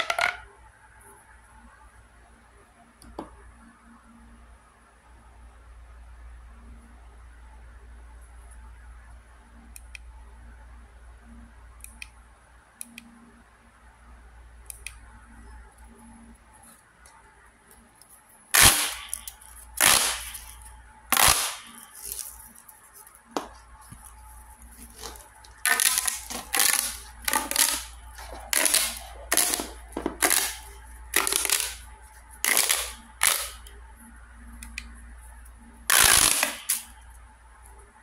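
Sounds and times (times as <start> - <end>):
plastic tube toy clicking: 28.5 - 31.8, 32.5 - 33.7.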